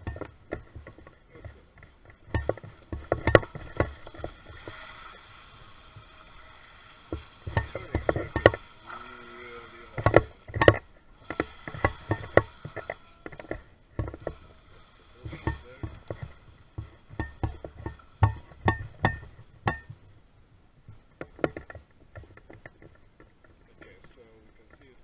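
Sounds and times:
toy boat motor whine: 0:02.2 - 0:18.7.

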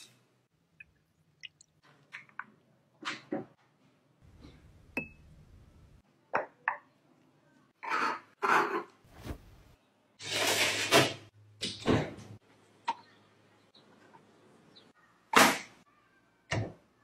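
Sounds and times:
metal baking tray scraping: 0:10.2 - 0:11.3.

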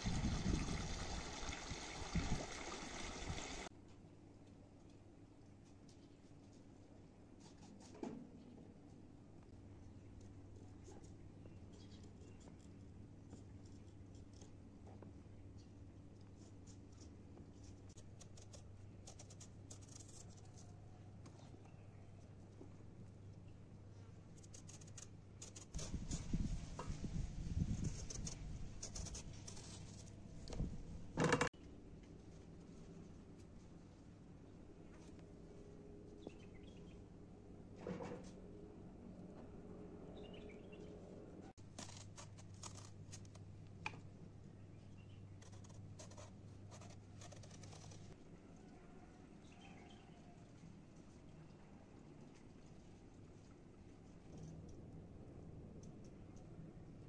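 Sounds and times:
peeler scraping eggplant skin: 0:41.6 - 0:43.4, 0:45.4 - 0:48.2.

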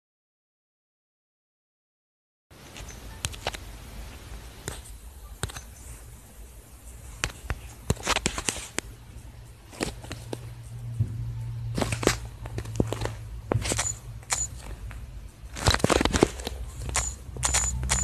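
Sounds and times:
steady low hum: 0:03.6 - 0:18.0.

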